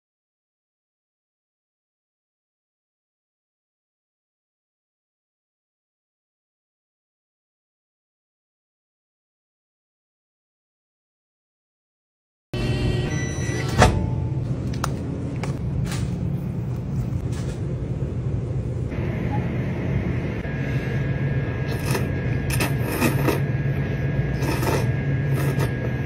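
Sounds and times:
low electrical hum: 12.6s - 26.0s.

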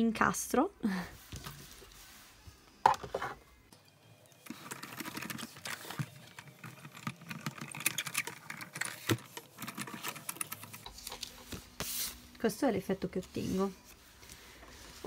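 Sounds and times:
hand-cranked machine clicking and creaking: 4.6s - 11.4s.

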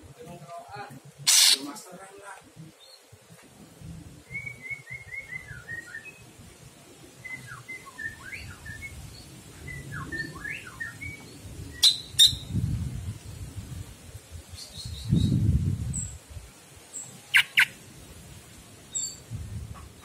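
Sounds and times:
bird chirping and whistling: 4.3s - 6.2s, 7.3s - 9.0s, 9.7s - 12.5s, 17.3s - 17.7s.

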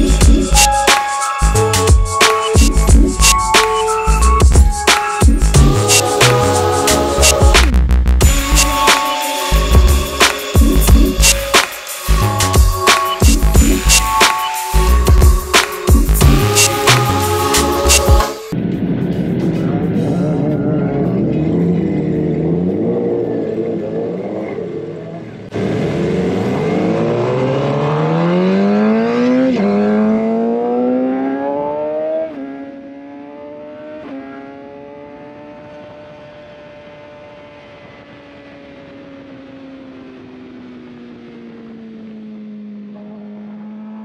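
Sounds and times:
motorcycle engine revving: 19.2s - 44.0s.

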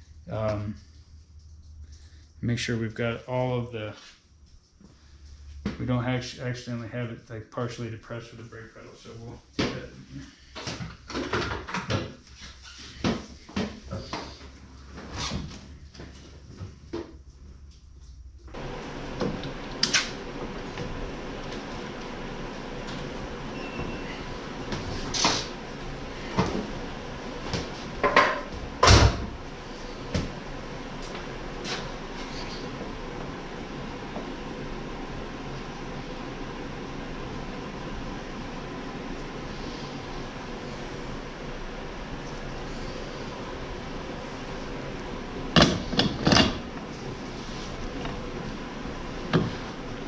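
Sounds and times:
metal parts knocking and clunking: 45.6s - 46.8s.

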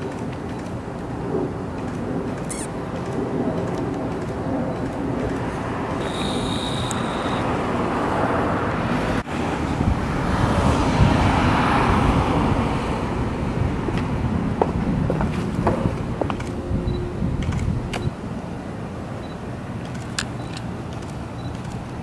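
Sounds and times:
road traffic rumble: 0.0s - 22.0s
short high steady tone: 6.0s - 7.4s.

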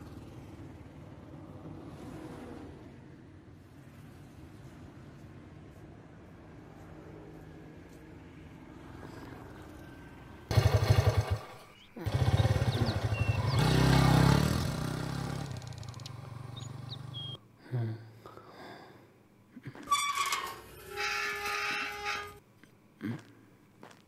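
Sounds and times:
motorcycle engine starting and revving: 10.5s - 17.4s.

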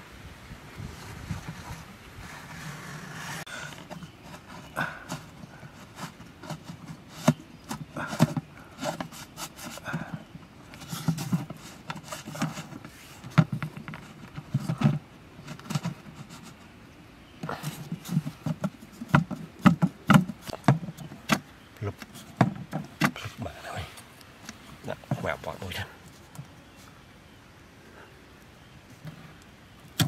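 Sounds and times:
rubbing cardboard: 1.0s - 3.5s
taps and scrapes on plastic bucket: 3.2s - 16.7s, 17.4s - 23.4s, 24.4s - 26.9s.

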